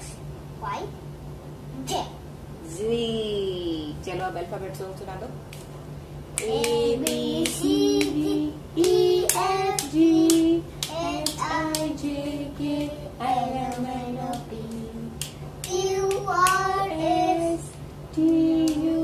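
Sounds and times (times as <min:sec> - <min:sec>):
child singing: 0:06.4 - 0:19.0.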